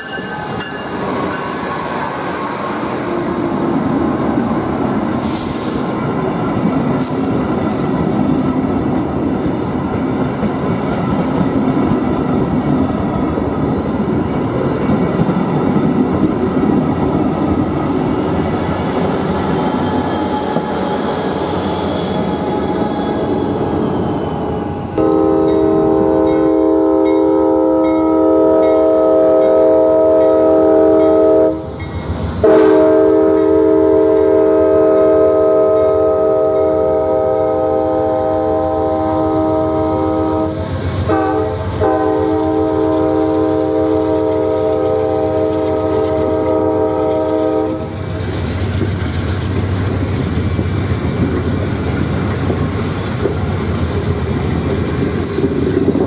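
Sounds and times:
train cars rumbling on rails: 0.0 - 56.0
locomotive air horn blasts: 25.0 - 31.7, 32.4 - 48.0.

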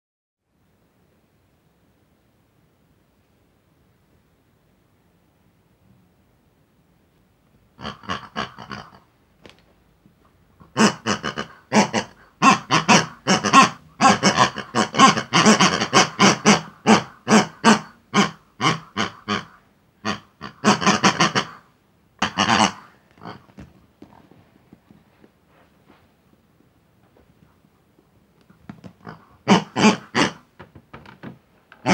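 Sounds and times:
squeeze toy squeals and oinks: 22.2 - 23.5, 29.0 - 30.4.

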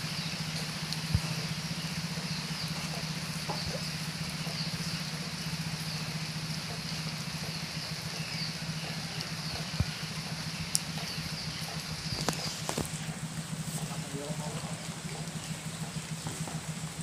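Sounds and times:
steady low hum: 0.0 - 17.0
faint clicks: 10.6 - 13.0.

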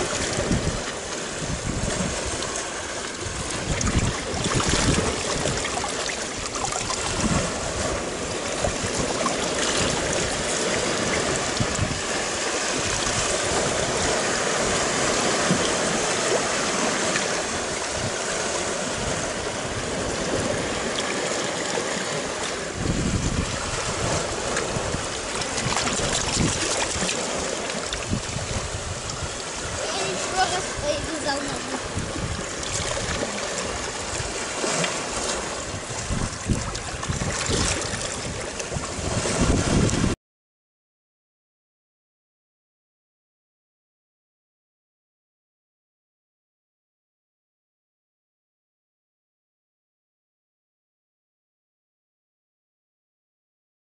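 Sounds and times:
sea water washing over rocks: 0.0 - 40.2.

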